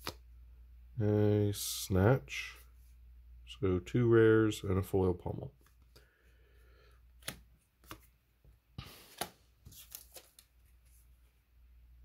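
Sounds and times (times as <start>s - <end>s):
cards rustling: 7.1s - 8.2s, 8.8s - 11.2s.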